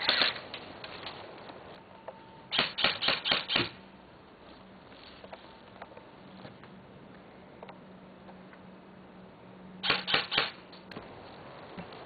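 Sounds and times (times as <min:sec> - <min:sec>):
airsoft gun firing: 0:02.5 - 0:03.8, 0:09.8 - 0:10.6.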